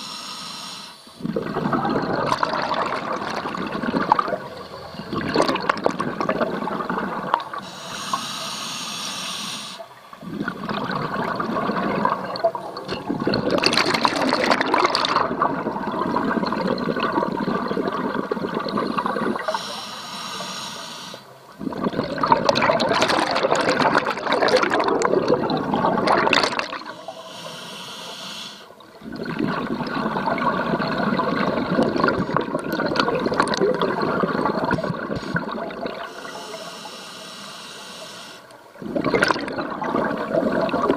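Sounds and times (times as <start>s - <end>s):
regulator hissing inhalation: 0.0s - 1.3s, 7.6s - 9.9s, 19.3s - 21.3s, 26.8s - 28.8s, 36.0s - 38.6s
bubbling exhaust underwater: 1.0s - 40.9s.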